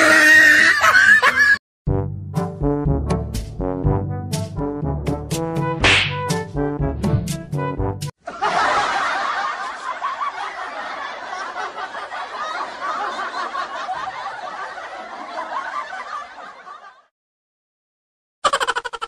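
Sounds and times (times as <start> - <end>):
crowd laughing: 0.5 - 1.6, 8.2 - 17.1.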